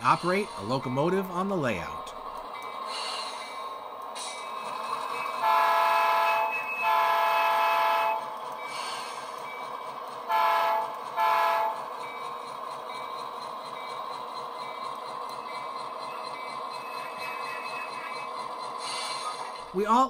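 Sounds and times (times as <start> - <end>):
model locomotive engine sound: 0.0 - 20.0
multi-note train horn: 5.4 - 8.2, 10.3 - 11.8.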